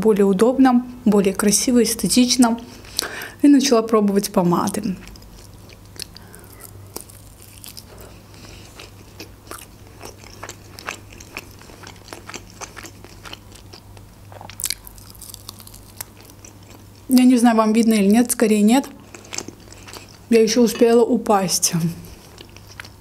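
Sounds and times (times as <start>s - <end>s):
chewing clicks and crackles: 4.7s - 16.8s.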